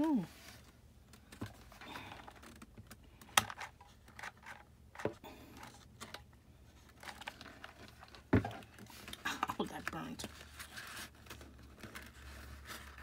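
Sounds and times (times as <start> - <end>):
paper rustling: 3.6 - 13.0.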